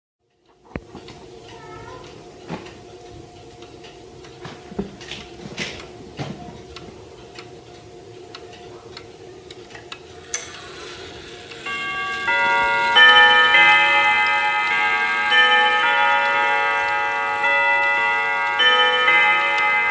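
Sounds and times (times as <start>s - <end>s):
wall clock ticking: 0.2s - 19.9s
clock chime rods ringing: 10.4s - 19.9s.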